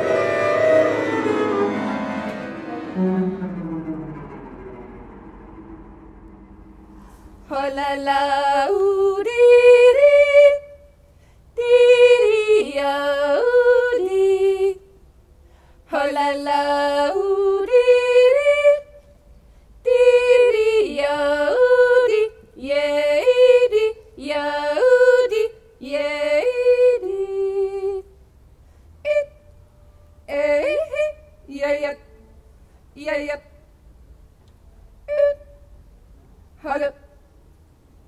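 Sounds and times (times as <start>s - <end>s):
woman yodeling: 35.1s - 35.6s.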